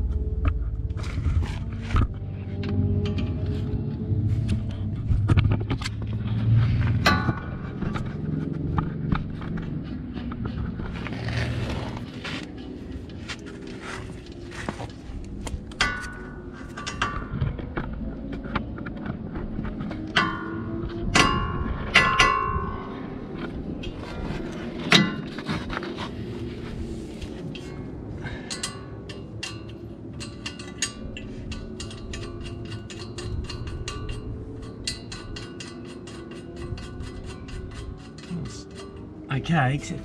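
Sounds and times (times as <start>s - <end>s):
ratchet clicking: 28.5s - 39.0s.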